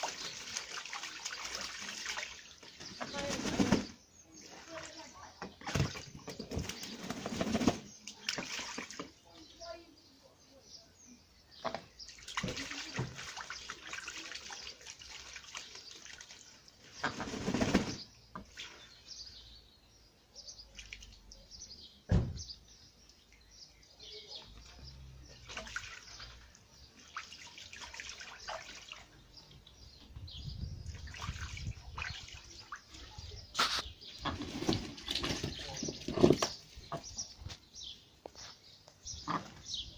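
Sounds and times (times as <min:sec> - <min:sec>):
ducks splashing in water: 0:00.0 - 0:09.2, 0:11.6 - 0:19.1, 0:24.6 - 0:29.4, 0:30.9 - 0:37.3.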